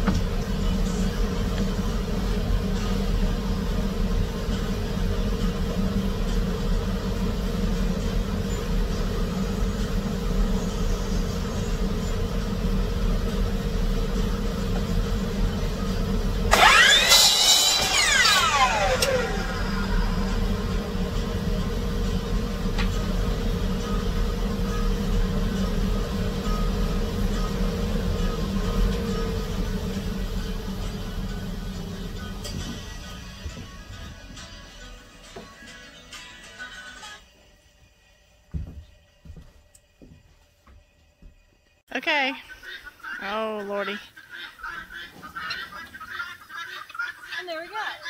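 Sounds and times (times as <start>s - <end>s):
steady low hum: 0.0s - 48.0s
saw blade spinning down: 16.4s - 23.9s
miter saw cutting wood: 16.4s - 25.8s.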